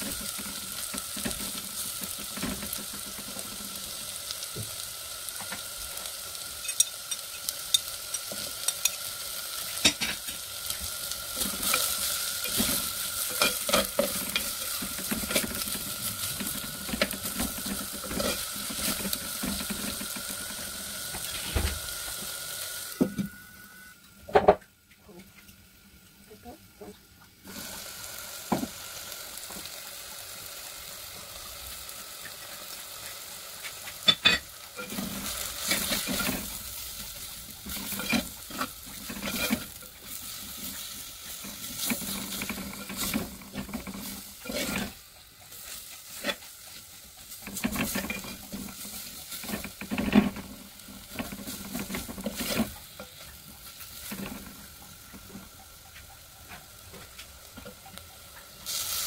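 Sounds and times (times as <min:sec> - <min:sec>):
onions sizzling in a pot: 0:00.0 - 0:59.0
spatula scraping a clay pot: 0:45.6 - 0:52.8.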